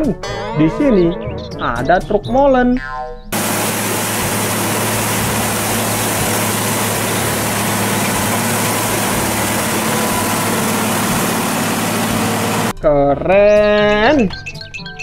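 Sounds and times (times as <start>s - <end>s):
truck engine hum: 3.4s - 12.7s
water gushing onto pavement: 3.4s - 12.7s.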